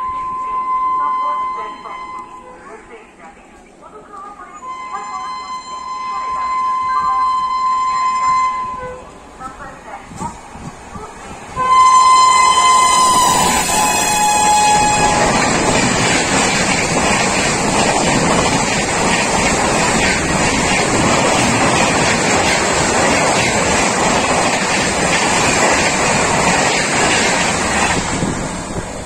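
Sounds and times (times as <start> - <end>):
train horn: 0.0 - 2.6, 4.6 - 9.2, 11.6 - 15.7
train rushing past: 4.6 - 29.0.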